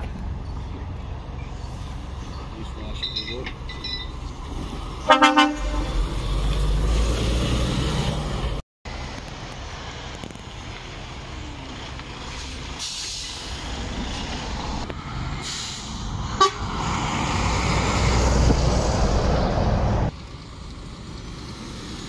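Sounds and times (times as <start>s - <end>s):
lorry engines rumbling: 0.0s - 22.0s
horn toot: 5.0s - 6.1s.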